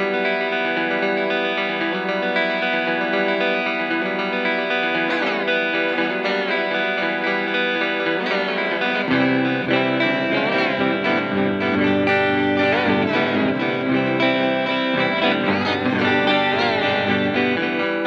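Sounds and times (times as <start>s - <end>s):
electric guitar with delay and reverb: 0.0s - 18.0s.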